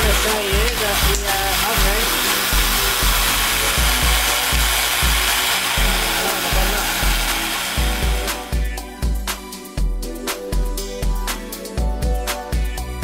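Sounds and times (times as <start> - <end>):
air compressor whirring hiss: 0.0 - 9.2
background music with beat: 0.0 - 13.0.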